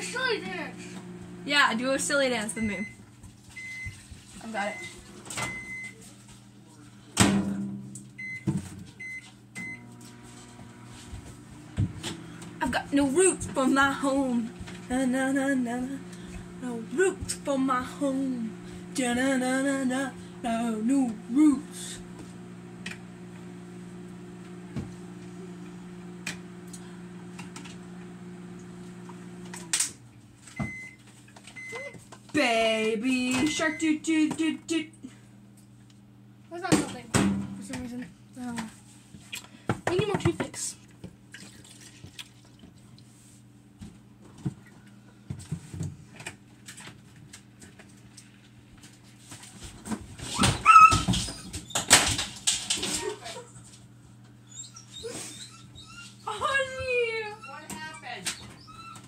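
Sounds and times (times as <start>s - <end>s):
microwave oven humming: 0.0s - 41.4s
low steady hum: 9.0s - 29.6s
dog yelping and whimpering: 50.4s - 51.6s, 54.5s - 56.6s, 57.2s - 59.0s.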